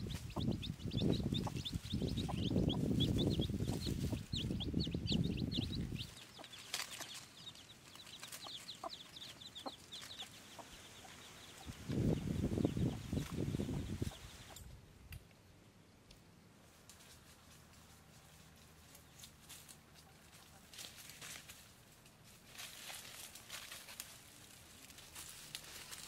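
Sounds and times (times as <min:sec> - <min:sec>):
chicks peeping: 0:00.0 - 0:14.6
hen clucking: 0:00.0 - 0:14.6.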